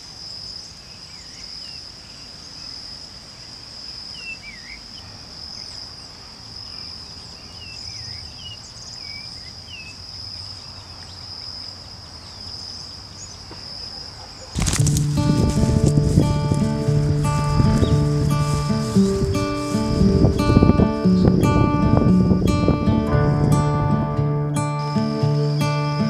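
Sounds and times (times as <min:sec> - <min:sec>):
insects droning: 0:00.0 - 0:26.0
birds chirping: 0:12.2 - 0:26.0
music: 0:14.6 - 0:26.0.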